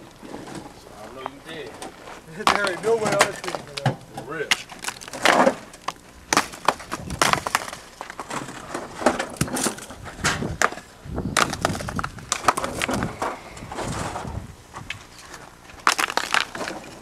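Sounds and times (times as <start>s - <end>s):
stones scraping: 0.2s - 17.0s
stones clacking on stone: 2.4s - 8.4s, 15.2s - 17.0s.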